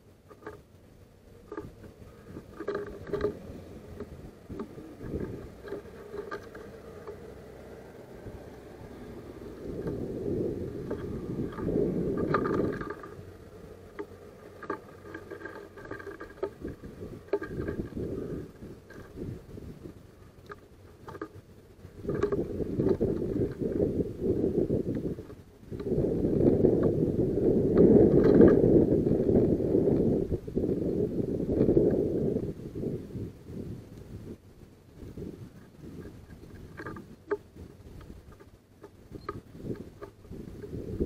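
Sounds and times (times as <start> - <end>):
birds tapping and scratching on wood: 0.0 - 29.5, 34.9 - 41.0.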